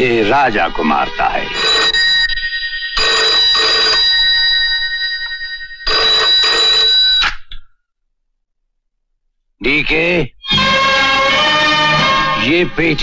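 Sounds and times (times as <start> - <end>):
telephone ringing: 0.5 - 7.4.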